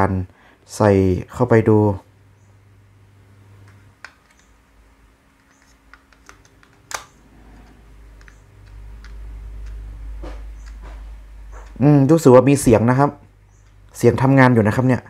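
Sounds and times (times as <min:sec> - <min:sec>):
plastic clicks and taps: 0:03.6 - 0:04.5, 0:05.4 - 0:11.8
battery snapping into holder: 0:05.4 - 0:07.2.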